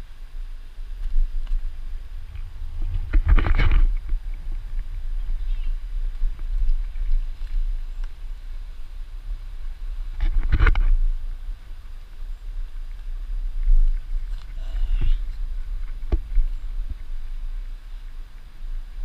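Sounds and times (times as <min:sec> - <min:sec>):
wind rumble: 0:00.0 - 0:19.0
microphone handling noise: 0:00.8 - 0:19.0
rustling scrape: 0:02.2 - 0:04.9.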